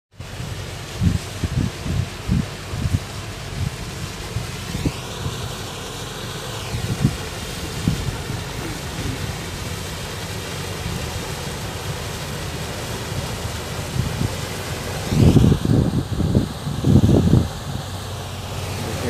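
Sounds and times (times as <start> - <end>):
wind buffeting microphone: 0.2 - 5.8, 6.6 - 11.2, 11.8 - 19.0
ferry engine rumble: 0.2 - 19.0.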